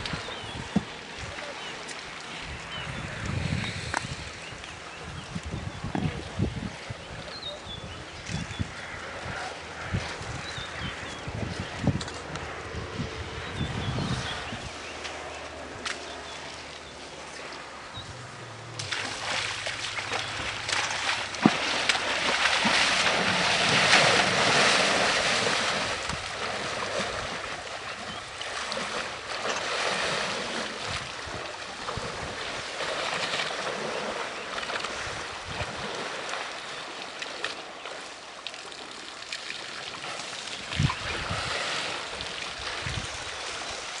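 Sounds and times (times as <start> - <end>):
elephants splashing water: 14.2 - 44.0.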